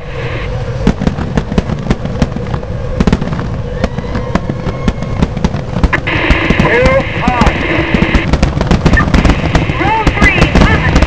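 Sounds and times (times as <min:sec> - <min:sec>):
racing engines rumbling: 0:00.0 - 0:11.0
exhaust pops and cracks: 0:00.9 - 0:11.0.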